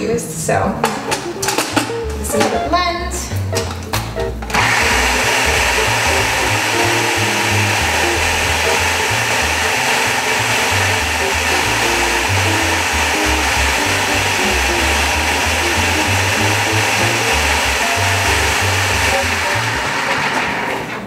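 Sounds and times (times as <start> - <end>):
background music: 0.0 - 21.0
food processor motor running: 4.5 - 20.8.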